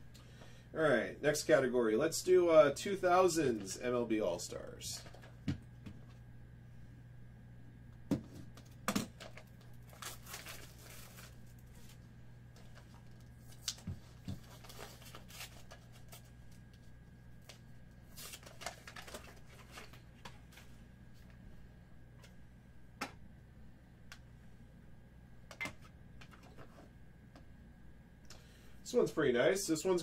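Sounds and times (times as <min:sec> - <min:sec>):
faint low hum: 0:00.0 - 0:30.0
paper and cardboard rustling: 0:09.2 - 0:12.0, 0:12.6 - 0:16.4, 0:17.5 - 0:20.7.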